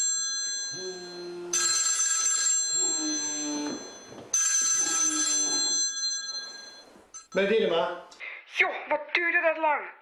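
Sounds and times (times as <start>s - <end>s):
mobile phone ringtone: 0.0s - 7.4s.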